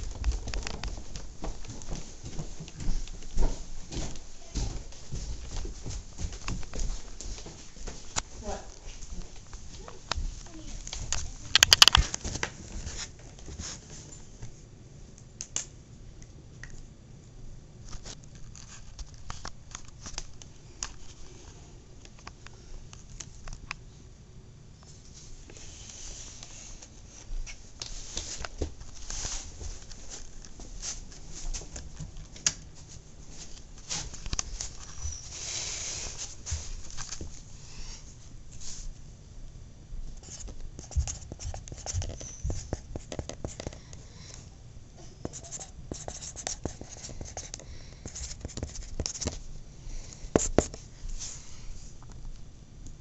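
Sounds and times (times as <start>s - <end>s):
brushing and scuffing: 12.8s - 14.1s, 27.8s - 31.7s
pen writing on paper: 40.2s - 43.8s, 45.3s - 49.3s.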